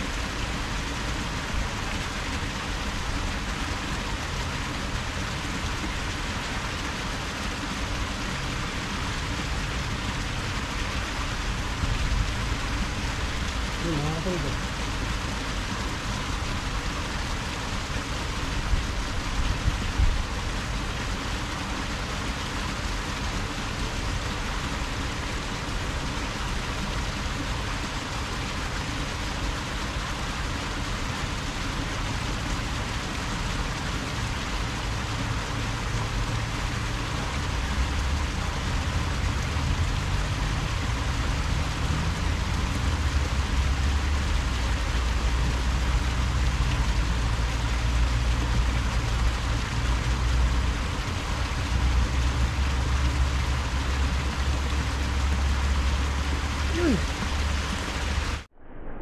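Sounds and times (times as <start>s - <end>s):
low rumble: 57.3s - 59.0s.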